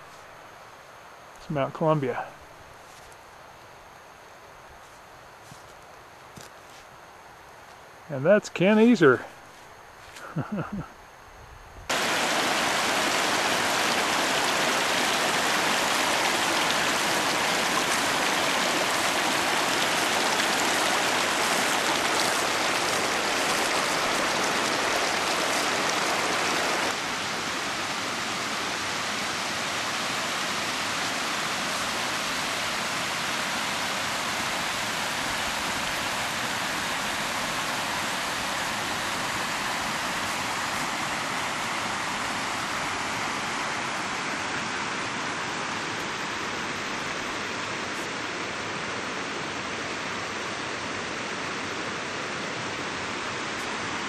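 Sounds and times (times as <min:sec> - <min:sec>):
creek rushing over rocks: 0:11.9 - 0:54.0.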